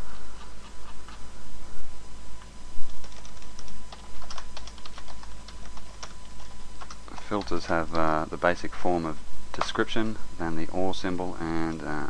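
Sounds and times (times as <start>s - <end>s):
typing on computer keyboard: 3.0s - 7.6s.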